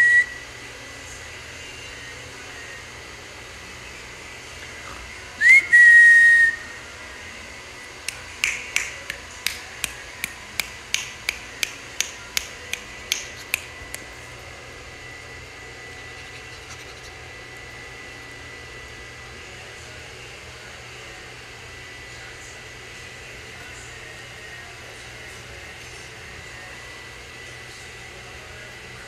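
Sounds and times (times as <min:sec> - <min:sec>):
person whistling: 0:00.0 - 0:00.4, 0:05.4 - 0:06.8
sharp mouth clicks: 0:08.1 - 0:14.1.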